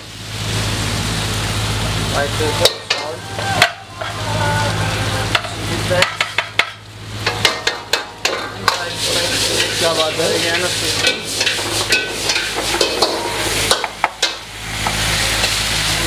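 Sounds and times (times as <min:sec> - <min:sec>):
food sizzling in pan: 0:00.0 - 0:16.0
metal spoons clanking on pans: 0:02.6 - 0:04.2, 0:05.3 - 0:14.4.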